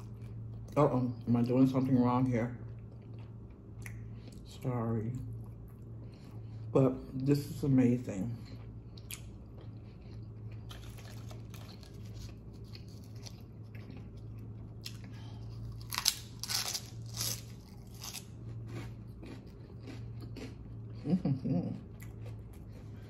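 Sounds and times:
person chewing food: 0.0 - 23.0.

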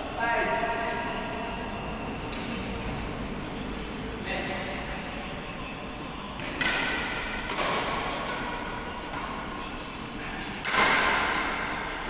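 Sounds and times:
badminton racket hitting shuttlecock: 10.6 - 11.6.

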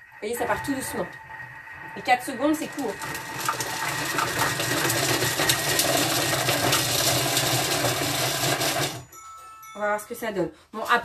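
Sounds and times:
food processor blade whirring: 0.1 - 9.1.

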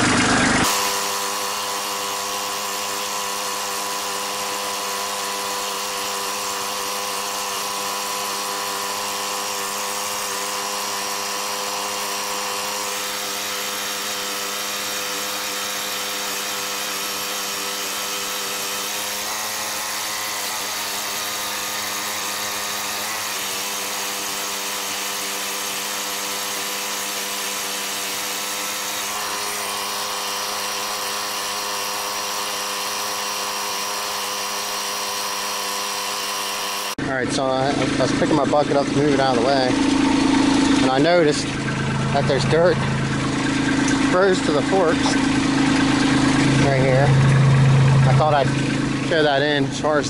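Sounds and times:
diesel tractor engine running: 36.9 - 50.0.

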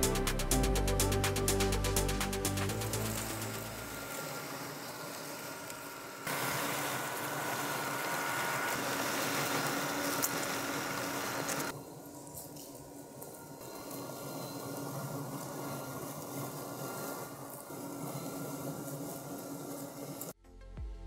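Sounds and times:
grass cutting hiss: 0.0 - 12.5
electric motor whine: 2.7 - 12.0.

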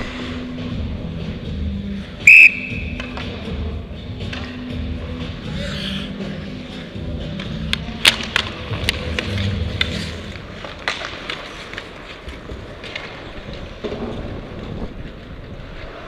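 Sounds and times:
hockey sticks and puck clacking: 2.4 - 4.8, 7.1 - 16.0
skate blades scraping ice: 7.4 - 16.0.

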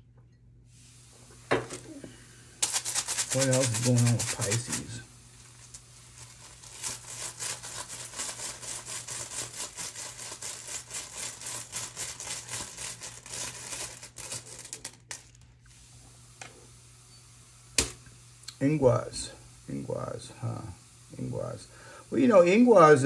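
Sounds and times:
tiles rattling in cloth bag: 5.6 - 15.4.

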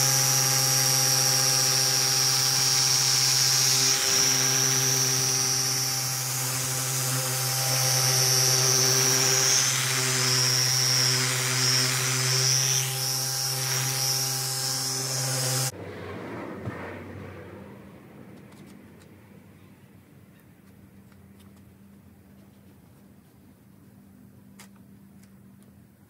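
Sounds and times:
car polisher motor whining: 0.0 - 15.7.

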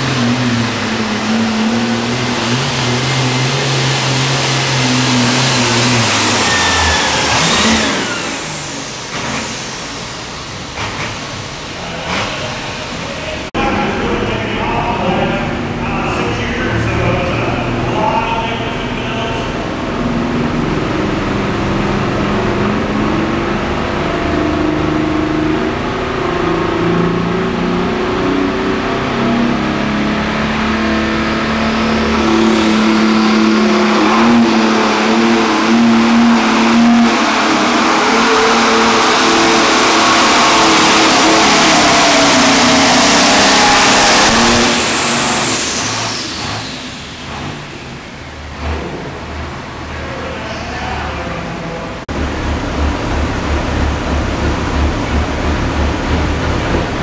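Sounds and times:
diesel tractor engine revving: 0.0 - 57.0
high turbo whine: 0.0 - 57.0.

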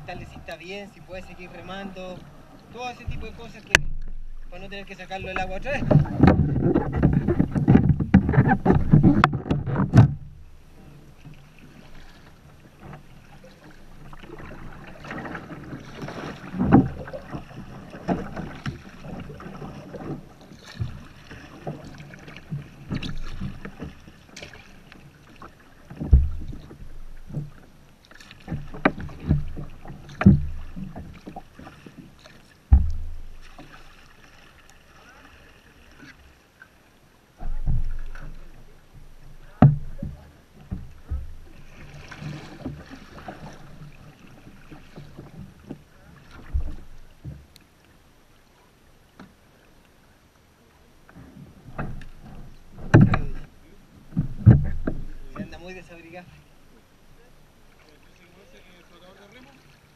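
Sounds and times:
paddle strokes: 0.0 - 59.9
water splashing against kayak: 0.0 - 59.9
low thumps: 3.0 - 10.5, 32.7 - 33.5, 38.9 - 41.7, 51.7 - 53.5, 54.1 - 55.5.

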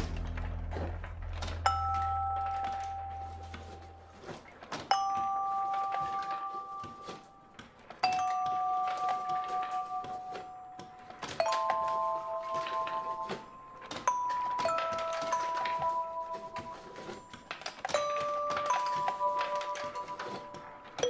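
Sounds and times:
low bass note: 0.0 - 3.6.

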